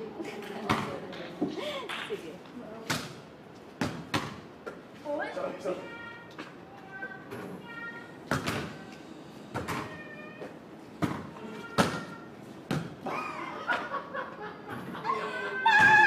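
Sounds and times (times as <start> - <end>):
basketball bouncing on court: 11.0 - 13.0.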